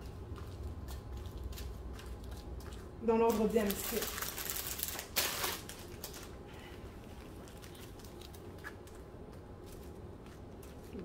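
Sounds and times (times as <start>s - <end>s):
plastic bag crinkle: 3.2s - 6.4s, 7.2s - 9.0s
plastic bags rustling: 3.2s - 9.0s.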